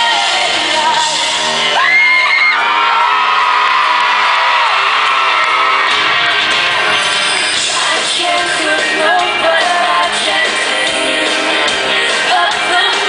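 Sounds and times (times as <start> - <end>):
live pop-rock band music: 0.0 - 13.0
audience whoops and yells: 1.3 - 7.0.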